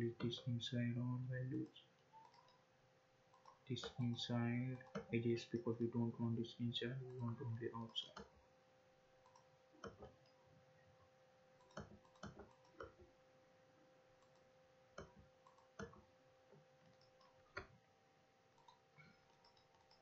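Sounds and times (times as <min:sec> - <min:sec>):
faint steady hum: 0:00.0 - 0:20.0
computer mouse clicks: 0:02.0 - 0:02.7, 0:03.3 - 0:05.2, 0:09.2 - 0:10.4, 0:11.6 - 0:13.1, 0:14.2 - 0:16.0, 0:16.8 - 0:17.7, 0:18.5 - 0:20.0.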